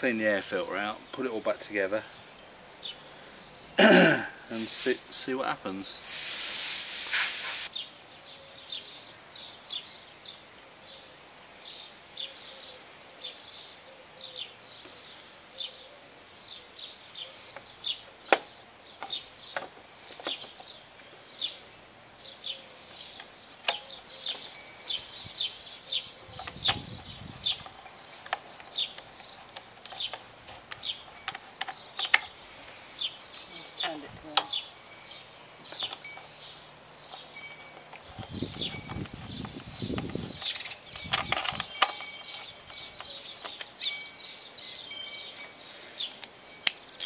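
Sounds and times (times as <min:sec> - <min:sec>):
compressed air hiss: 0:04.4 - 0:05.3, 0:05.9 - 0:07.7
small bird chirping: 0:14.2 - 0:47.0.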